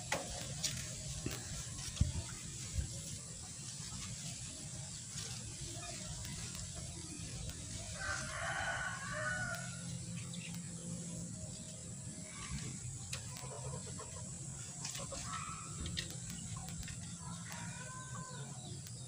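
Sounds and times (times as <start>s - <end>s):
rooster crowing: 7.9s - 9.9s, 17.4s - 18.5s.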